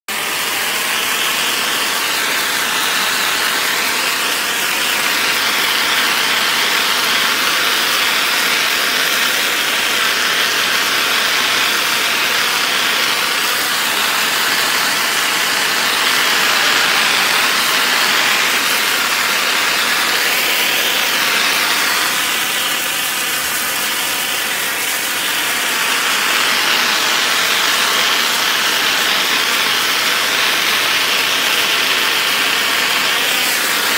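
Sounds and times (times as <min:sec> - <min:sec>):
pressure washer spraying stones: 0:00.1 - 0:33.9.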